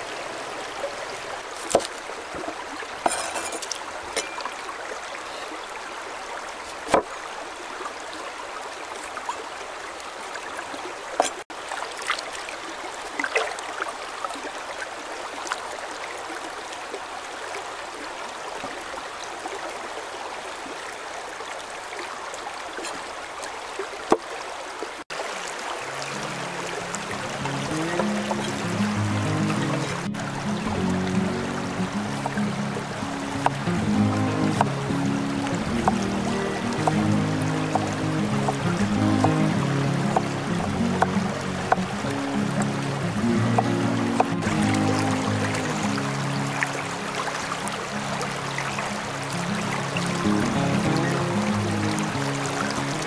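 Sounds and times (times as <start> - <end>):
stream water running over rocks: 0.0 - 53.0
cleaver chopping on wooden board: 1.6 - 3.6, 6.8 - 7.1, 34.6 - 34.8.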